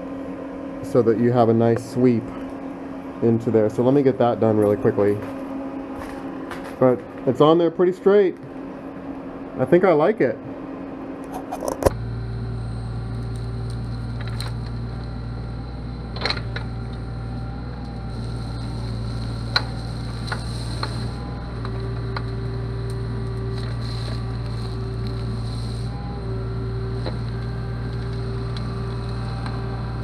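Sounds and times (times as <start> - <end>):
excavator diesel engine running: 11.9 - 30.0.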